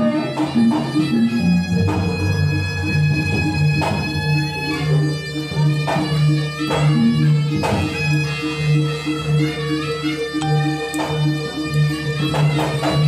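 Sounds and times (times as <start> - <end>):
reedy shawm melody: 0.0 - 13.0
low gong-chime notes: 10.4 - 12.3.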